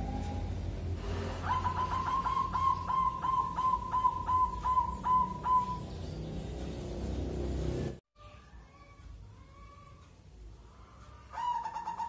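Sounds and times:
dove cooing: 0:01.3 - 0:05.9, 0:11.3 - 0:12.0.

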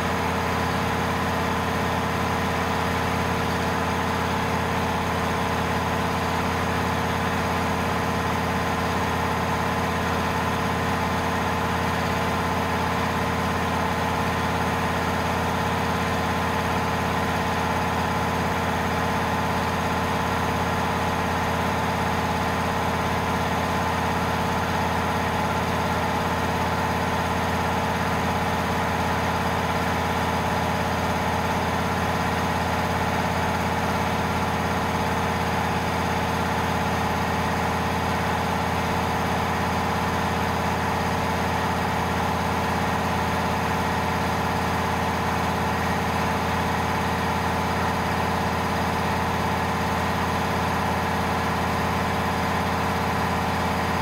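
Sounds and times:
air compressor running: 0:00.0 - 0:54.0.

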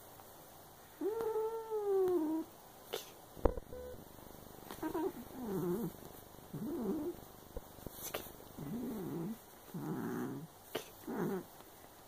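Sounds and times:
wavering cat calls: 0:01.0 - 0:02.5, 0:04.7 - 0:05.9
cat meowing: 0:04.8 - 0:05.9.

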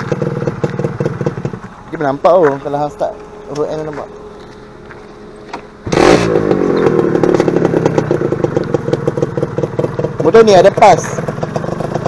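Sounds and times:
motorcycle engine starting and idling: 0:00.0 - 0:12.0.

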